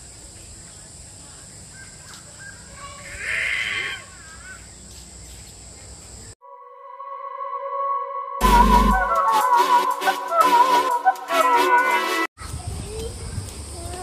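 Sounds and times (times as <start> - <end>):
harsh animal call: 2.8 - 4.6.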